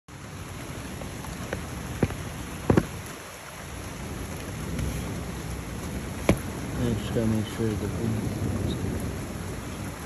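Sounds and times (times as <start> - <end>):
steady rain falling: 0.1 - 10.0
sharp knocks: 2.0 - 2.9, 6.2 - 6.5.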